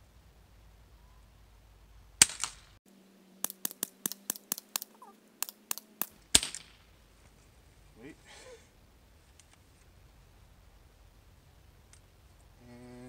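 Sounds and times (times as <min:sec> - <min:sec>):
air pistol shots: 0:02.2 - 0:02.7, 0:03.4 - 0:06.9
short sharp clicks: 0:03.4 - 0:06.8.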